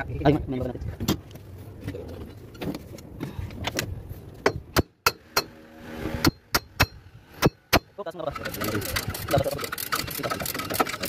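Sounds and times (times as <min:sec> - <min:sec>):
heavy chain clinking and rattling: 0:08.4 - 0:11.0.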